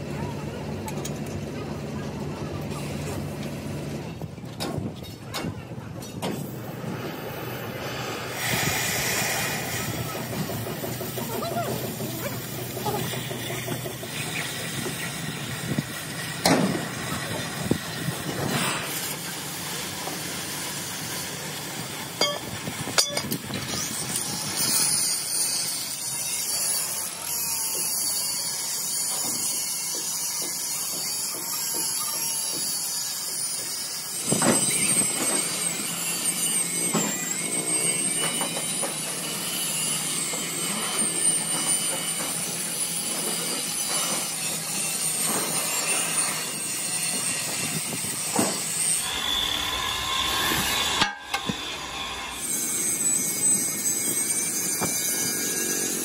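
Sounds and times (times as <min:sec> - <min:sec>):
cutting torch hissing: 0:06.5 - 0:22.9.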